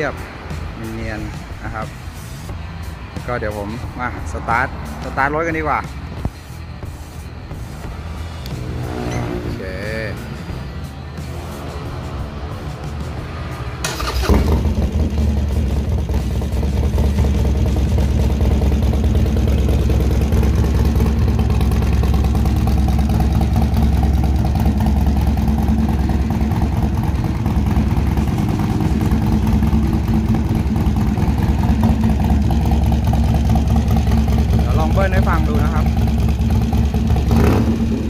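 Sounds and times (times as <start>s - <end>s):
motorcycle engine starting and idling: 13.8s - 38.0s.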